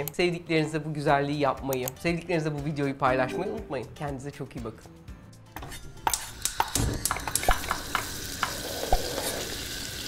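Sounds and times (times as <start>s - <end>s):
crackling sizzling with sharp clicks: 6.0s - 10.0s.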